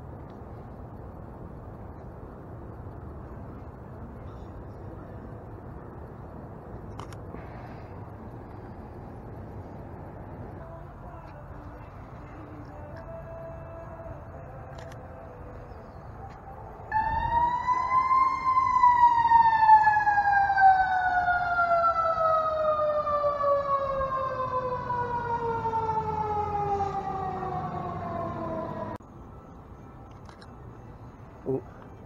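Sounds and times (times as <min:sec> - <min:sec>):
fire engine siren wailing: 0:16.9 - 0:29.0.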